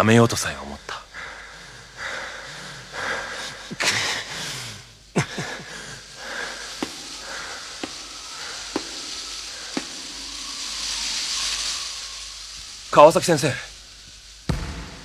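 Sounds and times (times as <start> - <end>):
hoarse breathing: 0.8 - 12.2
sharp knock: 14.5 - 15.0.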